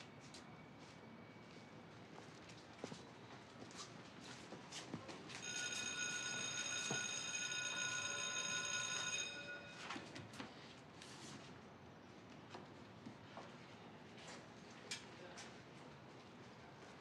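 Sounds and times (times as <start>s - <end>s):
high steady multi-tone ringing: 5.4s - 10.1s.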